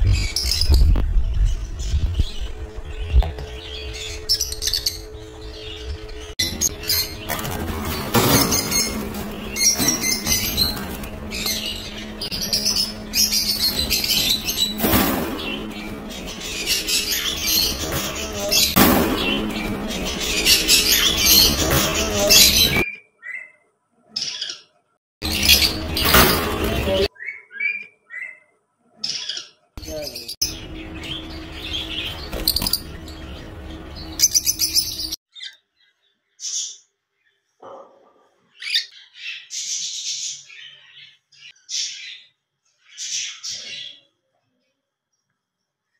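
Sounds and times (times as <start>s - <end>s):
steady low hum: 0.0s - 22.8s, 29.8s - 35.2s
parrots chirping and squawking: 1.7s - 23.6s, 24.2s - 35.5s.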